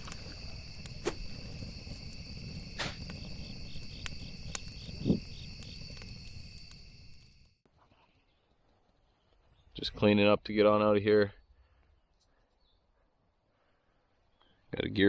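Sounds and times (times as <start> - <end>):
insects trilling: 0.0 - 7.6.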